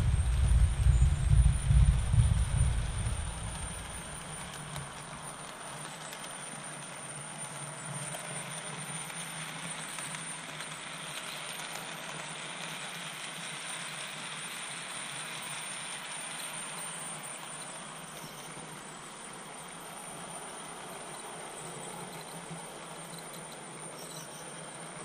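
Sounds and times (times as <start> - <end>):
low rumble: 0.0 - 4.0
model train whirring on rails: 0.0 - 25.0.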